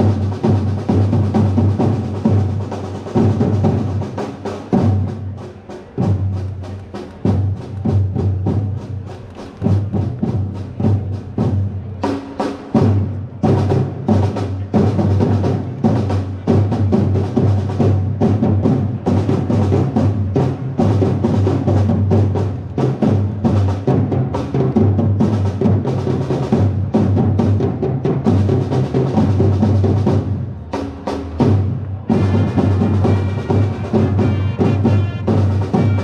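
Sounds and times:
drums beaten in fast rhythm: 0:00.0 - 0:36.0.

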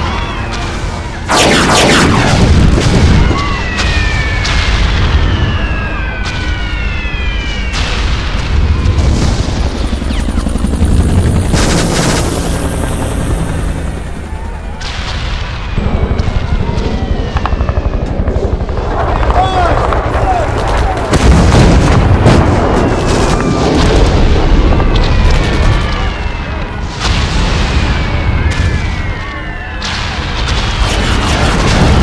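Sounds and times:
deep rumble of explosions: 0:00.0 - 0:12.3, 0:13.1 - 0:32.0
falling whistles: 0:03.1 - 0:08.1.

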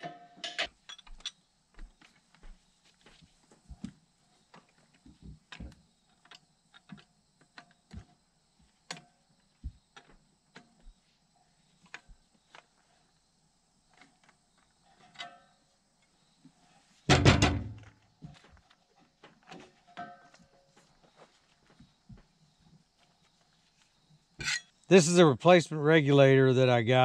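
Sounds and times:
clicks and knocks of metal tools: 0:00.0 - 0:01.4, 0:24.4 - 0:24.8.

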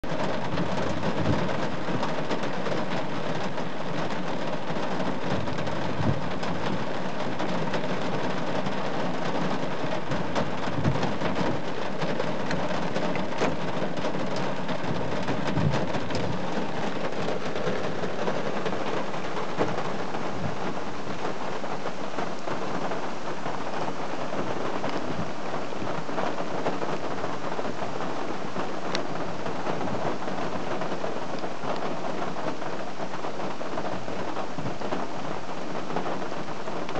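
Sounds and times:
heavy rain: 0:00.0 - 0:36.9.

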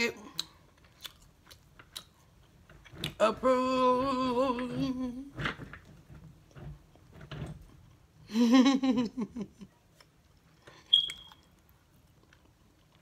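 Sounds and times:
woman chewing: 0:00.3 - 0:03.2.

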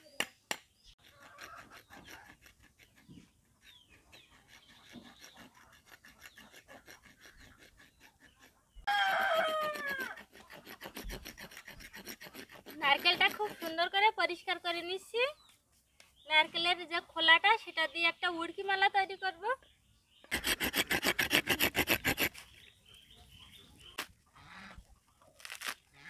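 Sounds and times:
rooster crowing: 0:08.9 - 0:10.2.

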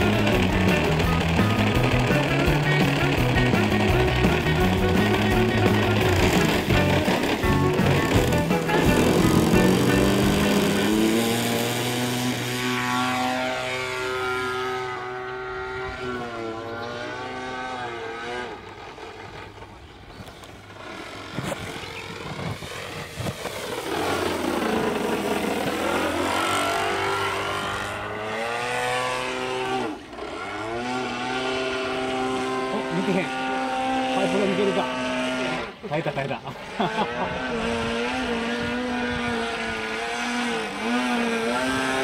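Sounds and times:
model plane engine: 0:00.0 - 0:42.0.

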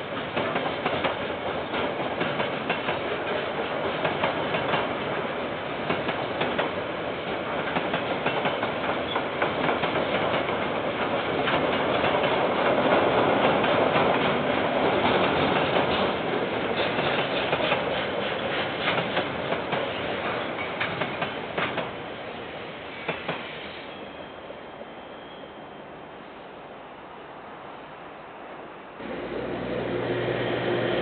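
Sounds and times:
train wagons rumbling: 0:00.0 - 0:25.4
wheels clicking over rail joints: 0:00.1 - 0:05.2, 0:05.8 - 0:22.0.

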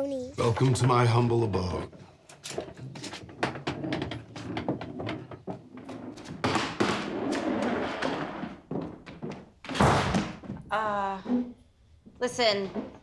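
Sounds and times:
suitcase rolling on wooden floor: 0:02.5 - 0:10.7
quick footsteps: 0:08.4 - 0:10.7.

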